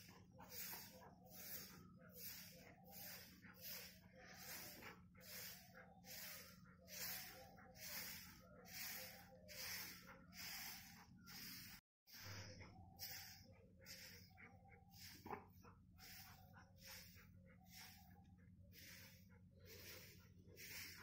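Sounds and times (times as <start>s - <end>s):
straw broom swishing on dirt: 0.0s - 12.2s, 12.8s - 21.0s.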